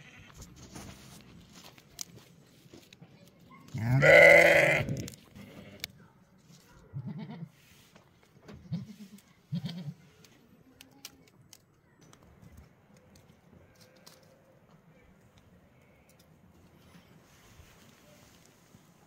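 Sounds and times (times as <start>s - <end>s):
goats bleating: 3.8s - 5.8s.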